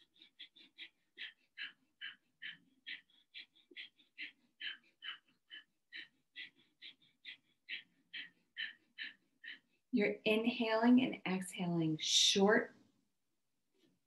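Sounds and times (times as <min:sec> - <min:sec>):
woman breathing fast through nose: 0:00.0 - 0:09.9.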